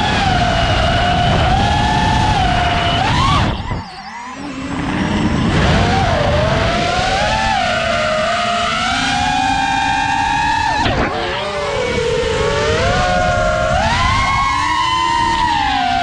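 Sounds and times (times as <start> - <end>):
wind rumble on microphone: 0.0 - 3.9, 9.7 - 16.0
drone motors whining: 0.0 - 16.0.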